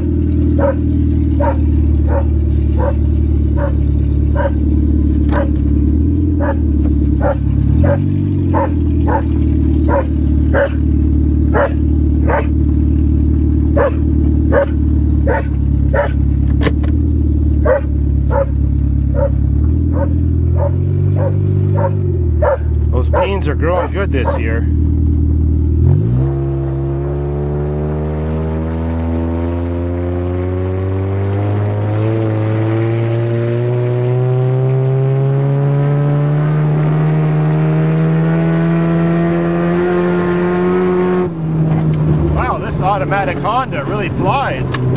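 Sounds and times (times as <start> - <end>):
car engine running: 0.0 - 44.9
dog barking: 0.6 - 0.8, 1.4 - 4.6, 5.4 - 5.6, 6.4 - 10.8, 11.5 - 12.5, 13.8 - 16.2, 17.6 - 24.5.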